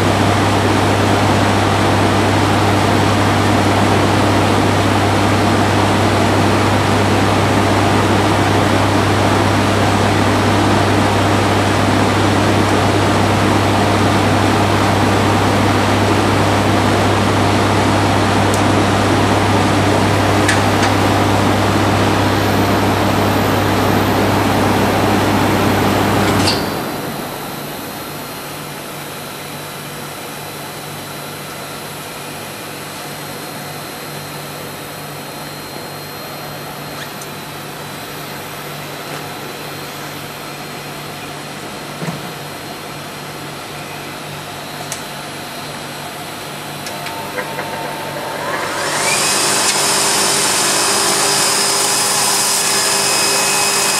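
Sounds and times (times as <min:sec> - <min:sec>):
extruder machine humming: 0:00.0 - 0:29.8, 0:42.9 - 0:53.9.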